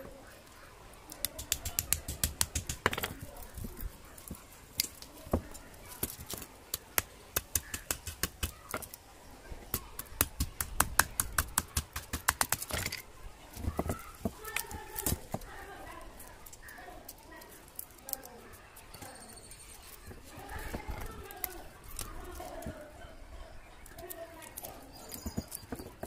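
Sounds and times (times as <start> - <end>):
sharp clicks and taps: 1.1 - 3.2, 9.7 - 13.0.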